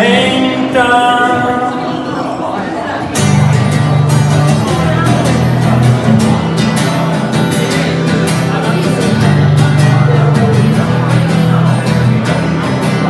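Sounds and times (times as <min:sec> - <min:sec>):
person singing: 0:00.0 - 0:03.5.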